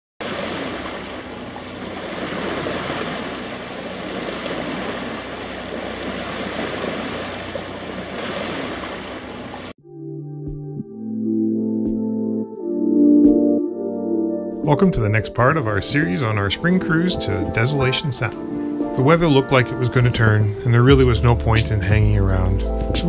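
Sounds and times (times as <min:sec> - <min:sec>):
rushing water: 0:00.2 - 0:09.8
wind: 0:00.2 - 0:09.8
calm ambient synthesizer music: 0:09.4 - 0:23.0.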